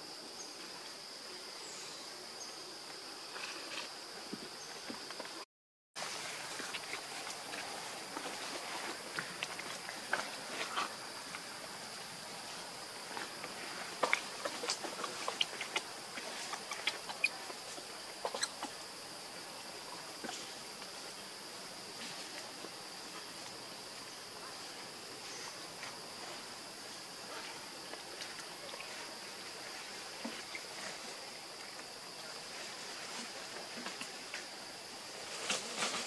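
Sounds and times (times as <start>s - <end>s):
high insect drone: 0.0s - 5.4s, 6.0s - 36.0s
rustling of dry leaf litter: 6.0s - 18.5s, 27.3s - 36.0s.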